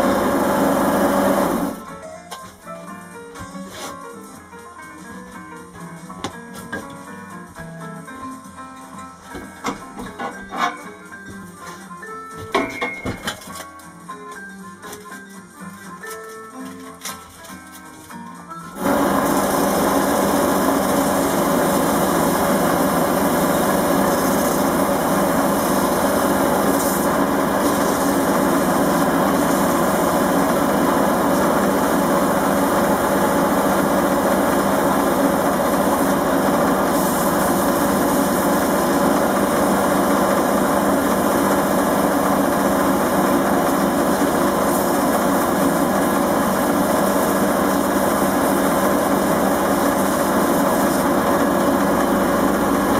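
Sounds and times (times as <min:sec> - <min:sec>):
wood lathe running: 0:00.0 - 0:01.8, 0:18.8 - 0:52.9
sandpaper on spinning wood: 0:18.8 - 0:52.9.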